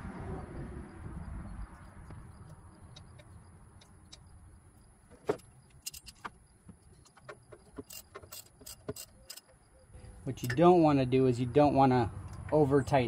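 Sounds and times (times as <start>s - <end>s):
ratchet wrench clinking and clicking: 5.8s - 6.2s, 7.0s - 9.5s.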